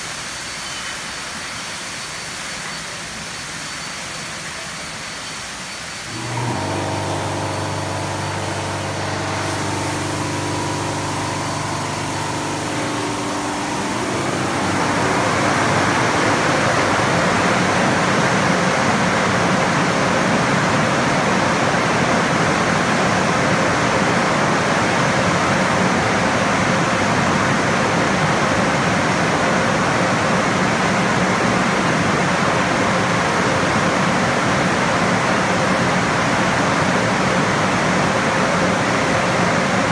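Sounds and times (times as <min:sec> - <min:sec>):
electric motor hum: 0:06.1 - 0:20.0.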